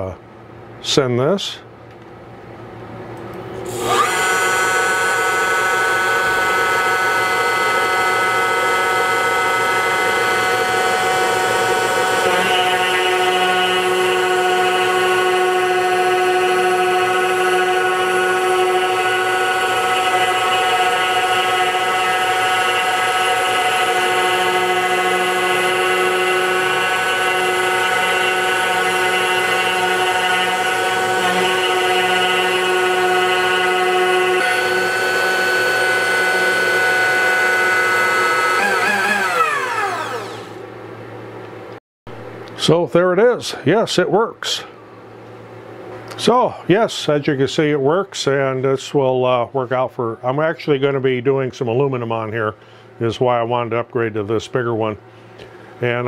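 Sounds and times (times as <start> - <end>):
trim router running: 3.6 - 40.8
router bit cutting wood: 3.7 - 40.6.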